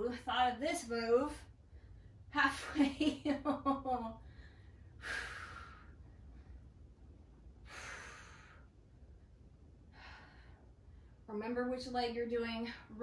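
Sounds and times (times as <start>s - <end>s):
woman breathing hard: 4.2s - 6.7s, 7.6s - 8.8s, 9.9s - 11.2s.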